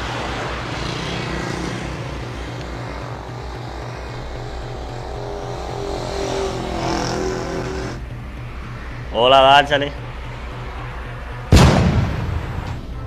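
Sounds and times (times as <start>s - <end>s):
motor scooter engine running: 0.0s - 9.0s
higher hum: 0.0s - 11.6s.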